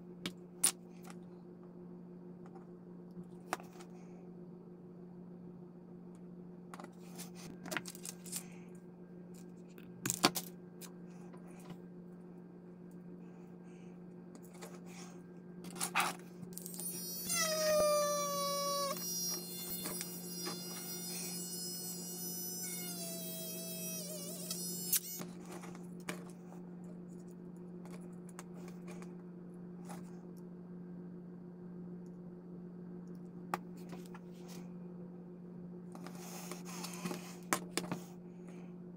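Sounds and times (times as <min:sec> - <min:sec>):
steady low hum: 0:00.0 - 0:38.9
rotary tool whining: 0:16.6 - 0:25.7.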